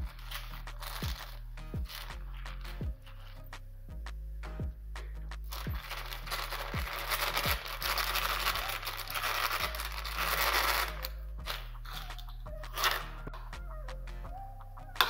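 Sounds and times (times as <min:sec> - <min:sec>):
crinkling handling noise: 0:00.0 - 0:03.5, 0:05.4 - 0:13.4
background music with bass glides: 0:00.0 - 0:15.0.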